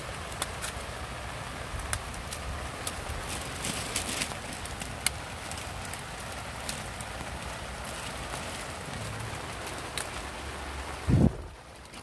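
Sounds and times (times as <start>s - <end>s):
steady rain falling: 0.0s - 12.0s.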